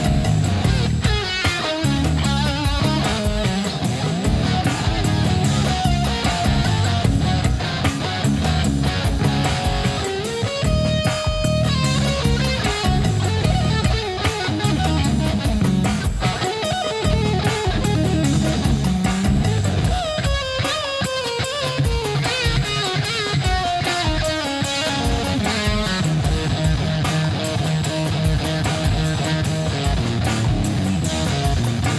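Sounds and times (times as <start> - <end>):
drums: 0.0 - 31.9
fuzz electric guitar: 0.0 - 31.9.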